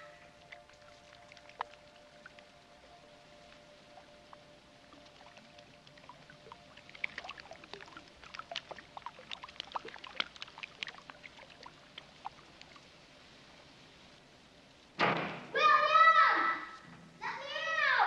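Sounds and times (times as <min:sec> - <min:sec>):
water dripping onto concrete: 0:05.0 - 0:12.8.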